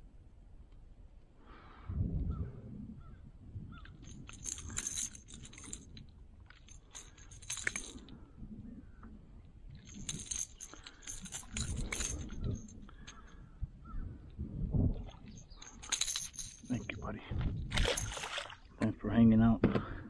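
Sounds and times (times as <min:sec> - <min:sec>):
metal pliers jingling on hooks: 0:04.0 - 0:08.0, 0:09.8 - 0:13.3, 0:15.5 - 0:17.0.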